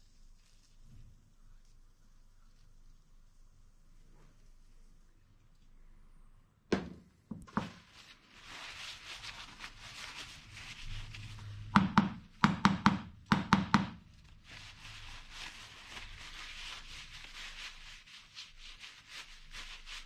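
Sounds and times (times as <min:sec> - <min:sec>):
metal rod knocking on workbench: 0:11.8 - 0:14.0.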